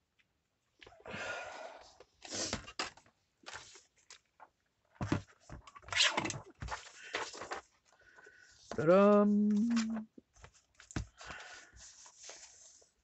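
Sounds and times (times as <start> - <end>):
paper rustling and crinkling: 3.4 - 8.8, 9.5 - 13.0.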